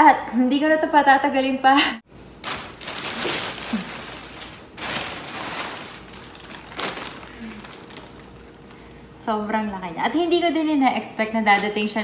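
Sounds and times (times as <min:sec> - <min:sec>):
plastic bag rustling and crinkling: 0:02.4 - 0:09.0.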